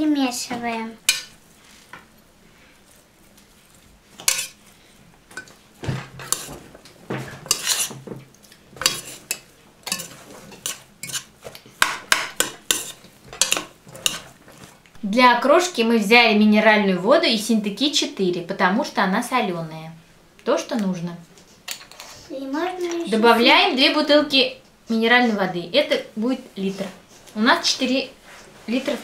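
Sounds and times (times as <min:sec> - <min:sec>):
metal spoon scraping a pot: 0:04.2 - 0:04.6, 0:06.2 - 0:06.6, 0:07.5 - 0:08.0, 0:08.8 - 0:11.3, 0:12.4 - 0:14.3.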